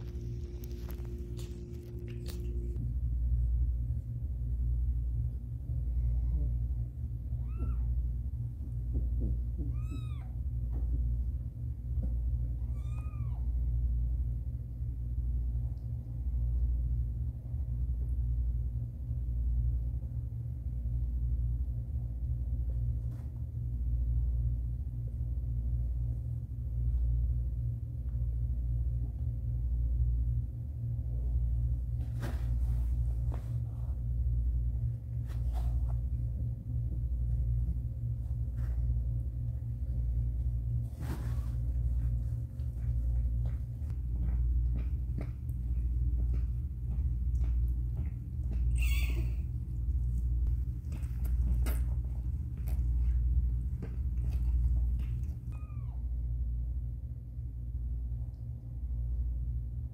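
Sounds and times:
cat meow: 7.4s - 8.0s, 9.6s - 10.4s, 12.6s - 13.5s, 48.7s - 49.5s, 55.5s - 56.1s
rustling in bedding: 31.8s - 36.3s, 38.1s - 43.4s.

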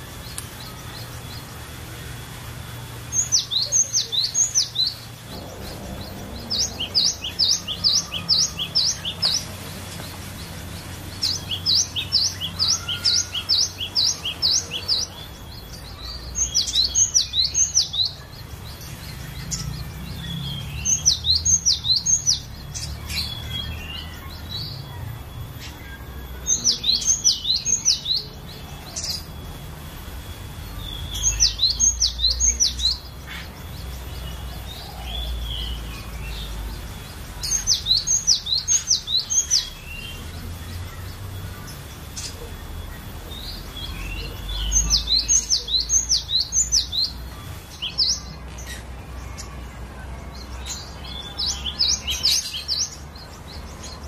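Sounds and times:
bird singing high sharp notes: 2.8s - 49.6s.

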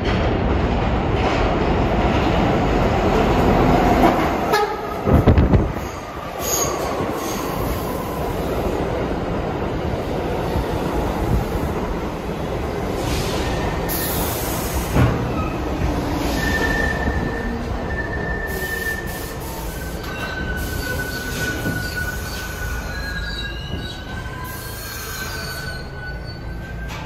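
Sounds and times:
train rumble: 0.0s - 27.0s
train wheels squealing on rails: 5.1s - 9.1s, 10.0s - 27.0s.

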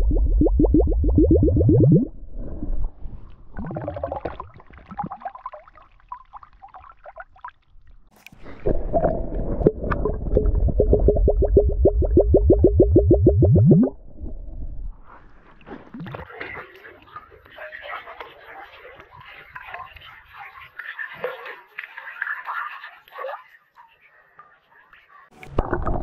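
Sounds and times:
air glugging from submerged flask: 0.0s - 2.8s, 3.5s - 7.6s, 8.4s - 14.5s
water splashing and trickling: 3.1s - 12.4s.

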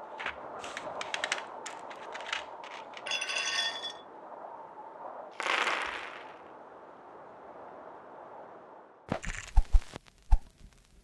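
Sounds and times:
clinking rattle: 3.0s - 4.0s.

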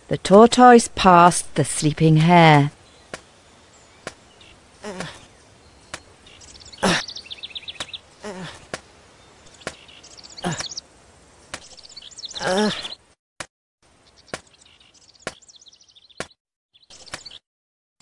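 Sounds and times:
birds chirping and trilling: 2.2s - 13.2s, 13.9s - 17.4s.

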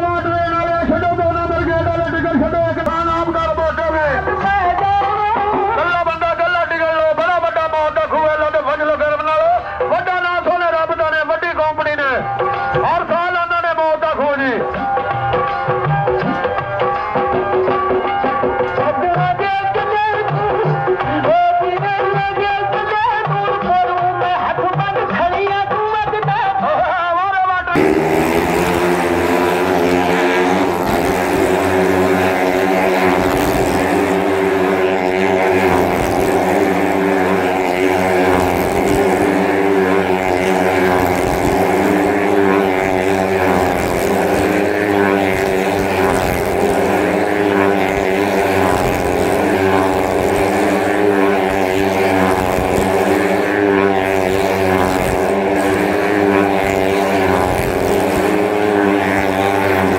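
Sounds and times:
motorcycle engine droning: 0.0s - 10.7s, 27.7s - 59.9s.

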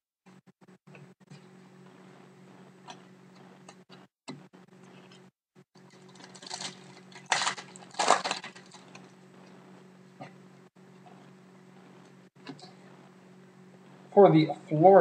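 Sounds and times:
wrapper crinkling and tearing: 5.9s - 9.0s.

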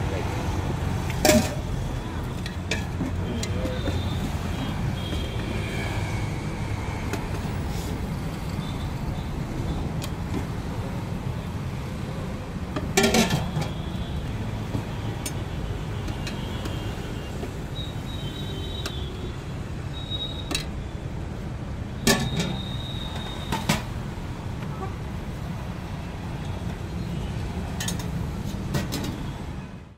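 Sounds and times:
low road traffic rumble: 0.0s - 29.9s
metal ladle clinking on pot: 1.2s - 1.7s, 12.9s - 13.6s.

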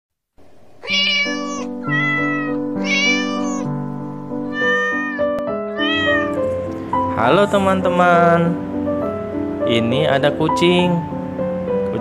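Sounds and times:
cat meowing: 0.8s - 3.8s, 4.4s - 6.5s.

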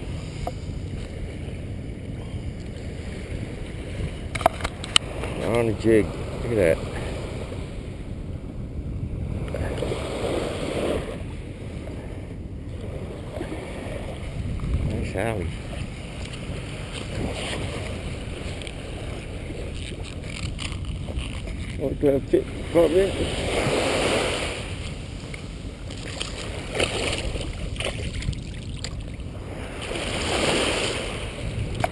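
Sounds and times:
surf washing on shore: 0.0s - 31.9s
wind rumbling on microphone: 0.0s - 31.9s
short water splashes: 13.3s - 31.9s.

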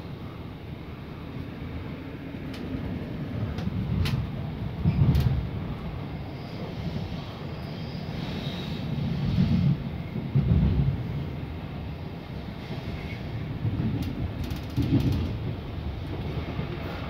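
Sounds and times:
train wheels rumbling on track: 0.0s - 17.0s
wheels clicking on rails: 2.4s - 5.6s, 12.7s - 17.0s.

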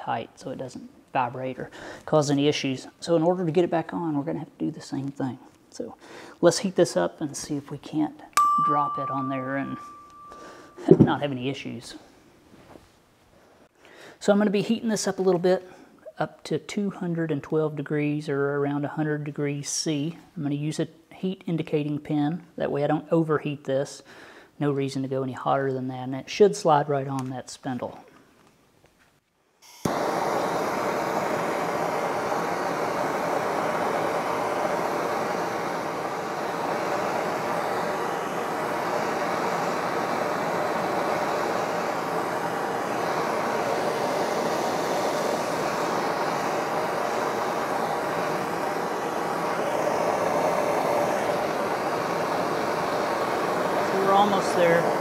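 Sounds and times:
gas torch hissing: 29.6s - 55.0s.

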